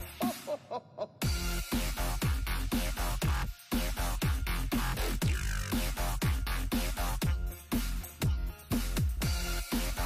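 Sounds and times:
electronic music with heavy beat: 0.0s - 10.0s.

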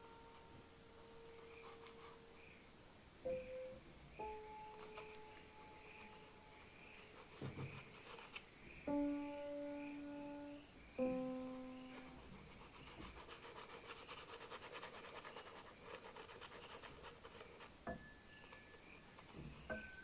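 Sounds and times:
conte stick scratching on paper: 1.4s - 2.6s, 4.7s - 8.4s, 12.0s - 19.9s.

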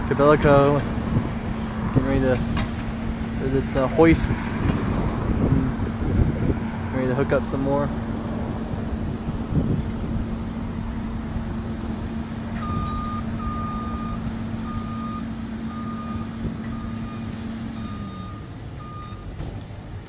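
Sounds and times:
excavator diesel engine running: 7.9s - 20.0s
backup alarm beeps: 12.6s - 19.3s.

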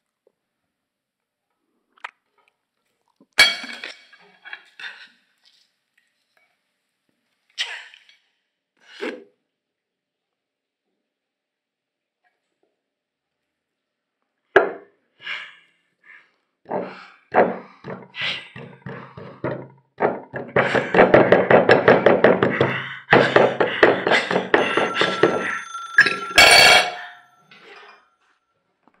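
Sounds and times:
metal utensil thudding on plate: 24.1s - 27.6s.

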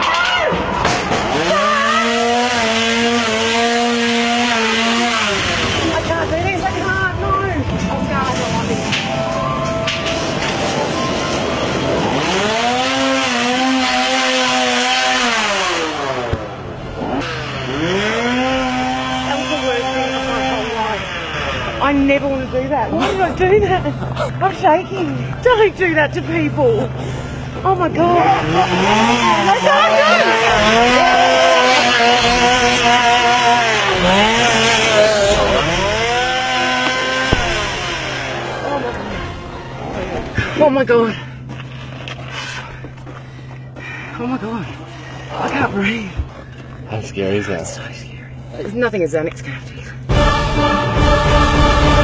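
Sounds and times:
chainsaw engine revving: 0.9s - 7.2s, 10.6s - 23.2s, 25.5s - 41.3s.

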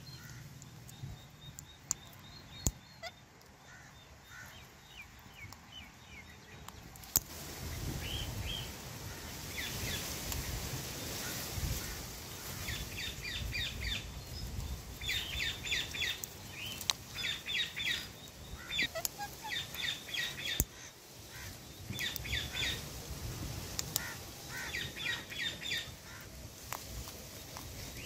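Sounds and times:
parakeets chirping: 0.0s - 6.7s, 15.0s - 22.8s
sharp clicks: 0.2s - 3.5s.

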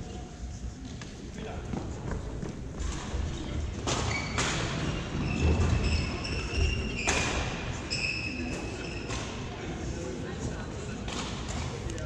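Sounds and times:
sneakers squeaking on hardwood: 3.9s - 9.4s.

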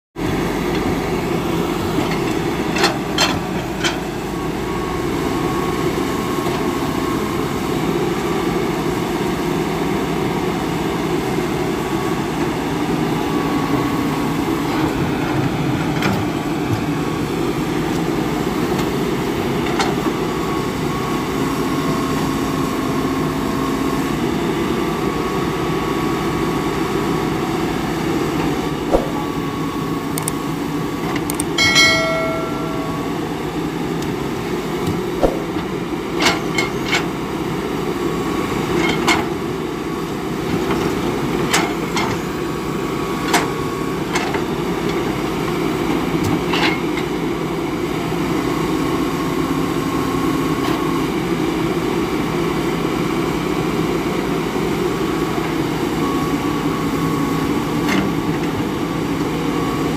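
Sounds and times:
excavator diesel engine running: 0.2s - 46.3s
sharp knocks: 28.9s - 29.4s, 35.2s - 35.6s
thin whine: 31.6s - 33.7s.

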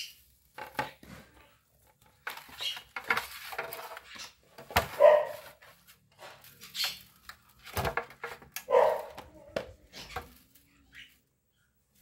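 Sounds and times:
dog barking: 5.0s - 5.5s, 8.7s - 9.2s.

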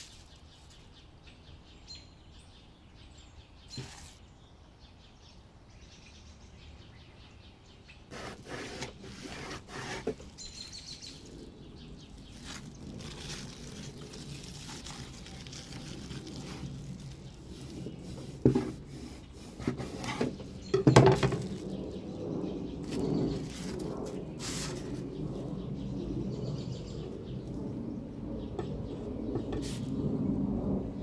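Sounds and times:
knife cutting plastic: 8.1s - 10.6s, 12.2s - 21.7s
plastic bag crinkling: 12.0s - 19.3s, 21.1s - 21.9s, 22.8s - 25.1s.

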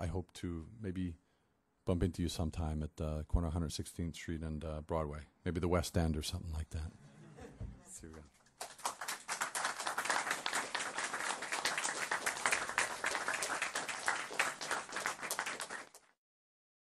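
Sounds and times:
crowd applauding: 8.6s - 16.2s.

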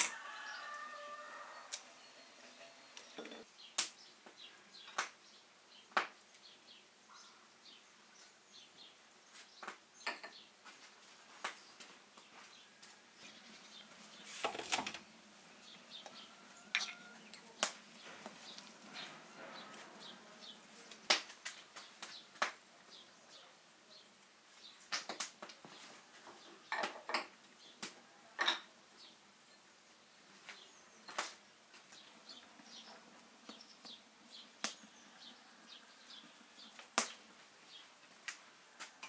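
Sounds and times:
faint bird chirps: 7.1s - 8.8s, 15.6s - 20.6s.

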